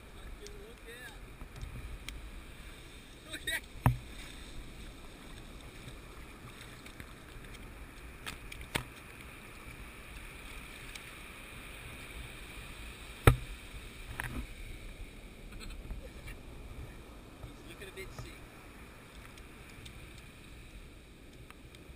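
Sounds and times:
surf washing over sand: 0.0s - 21.9s
sharp knocks: 13.2s - 13.5s.

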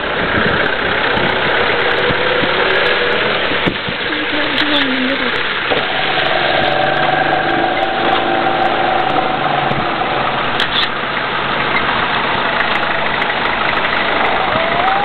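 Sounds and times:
vehicle engine idling: 0.0s - 15.0s
faint tonal hum: 5.7s - 10.6s.

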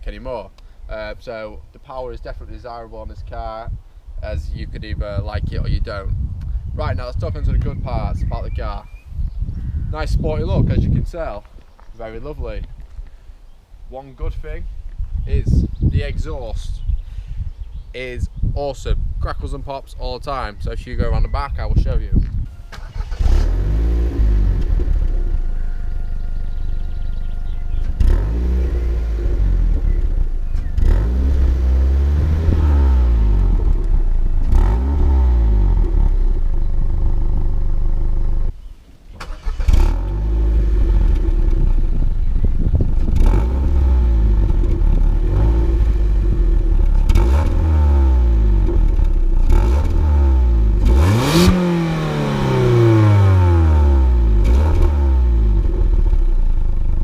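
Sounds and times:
car engine revving: 22.8s - 38.5s, 39.2s - 56.9s
exhaust pops and crackles: 24.2s - 25.5s, 27.1s - 38.2s, 39.1s - 53.2s, 54.0s - 57.0s.

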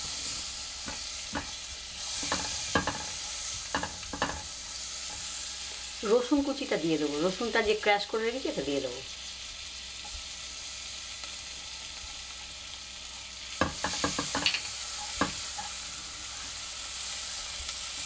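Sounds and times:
butter and garlic sizzling: 0.0s - 18.0s.

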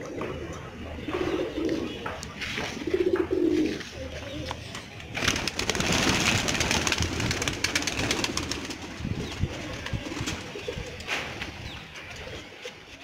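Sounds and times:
pigeons cooing: 0.0s - 4.7s, 5.5s - 13.0s
wings flapping: 5.1s - 11.5s.

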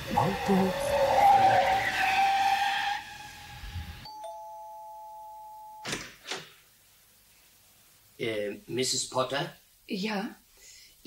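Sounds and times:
car tyre squeal: 0.0s - 4.0s
two-tone doorbell chime: 4.0s - 5.9s.

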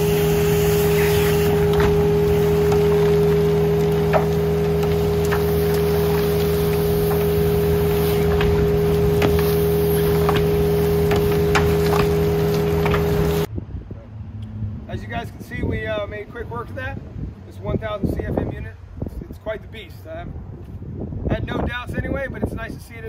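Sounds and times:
vacuum blower running: 0.0s - 13.5s.

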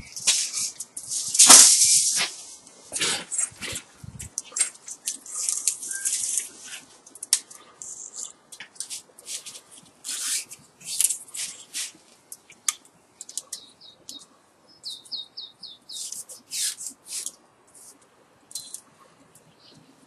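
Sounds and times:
wire scraping against insulation: 0.0s - 12.0s, 16.0s - 18.8s
high squeaky chirps: 4.4s - 6.7s, 13.3s - 17.0s.

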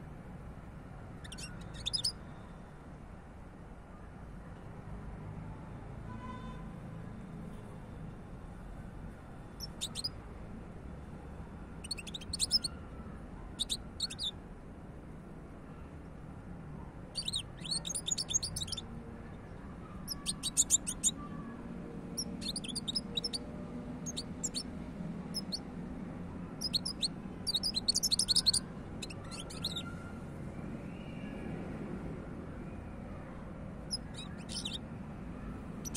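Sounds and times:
goldfinch twittering: 1.2s - 2.1s, 11.8s - 12.7s, 17.2s - 18.8s, 20.1s - 21.1s, 22.2s - 23.4s, 24.1s - 24.6s, 25.3s - 25.6s, 26.6s - 29.8s, 33.9s - 34.8s.

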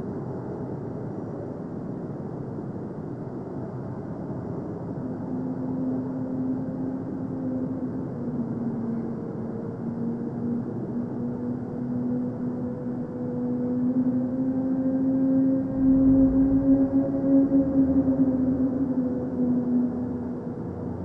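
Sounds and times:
low droning rumble: 15.6s - 21.0s
held tone stepping in pitch: 15.7s - 19.3s.

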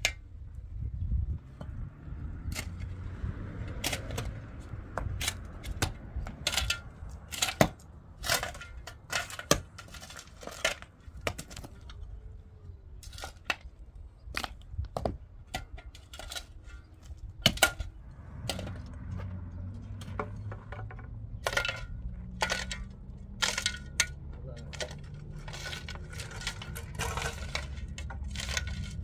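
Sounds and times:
low engine hum: 0.5s - 8.2s, 16.8s - 29.0s
pickaxe and shovel striking stone: 5.0s - 11.8s, 17.4s - 18.8s.

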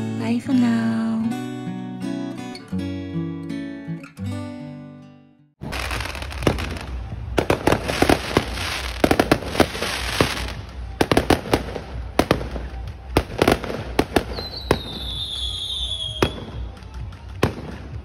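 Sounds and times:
fireworks bangs and crackling: 5.6s - 18.0s.

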